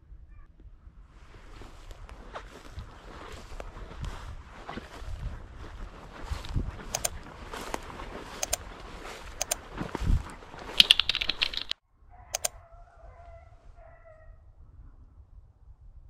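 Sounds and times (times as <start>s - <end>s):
footsteps through dry grass: 1.1s - 11.8s
double mouse clicks: 6.8s - 8.7s, 9.4s - 10.0s, 10.6s - 12.6s
keyboard typing: 6.8s - 8.7s, 9.4s - 9.7s, 10.6s - 11.8s.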